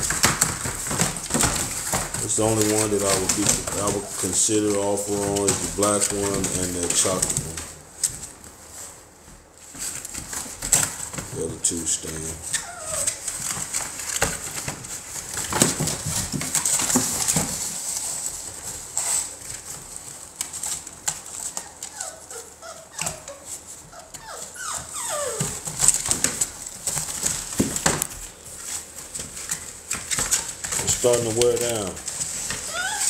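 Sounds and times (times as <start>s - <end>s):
puppies whimpering and yipping: 2.6s - 7.4s, 12.4s - 13.8s, 21.3s - 26.4s, 32.3s - 33.0s
puppy whines: 3.2s - 4.4s, 12.4s - 13.7s, 21.3s - 26.4s, 32.4s - 33.0s.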